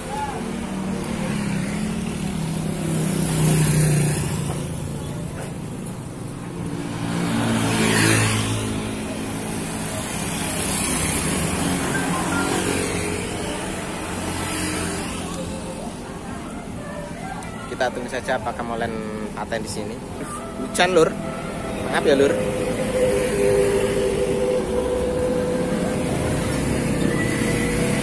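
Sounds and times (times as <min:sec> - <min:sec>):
road traffic passing: 0:00.0 - 0:28.0
motorcycle passing on wet road: 0:00.7 - 0:04.5, 0:06.9 - 0:15.8, 0:21.2 - 0:28.0.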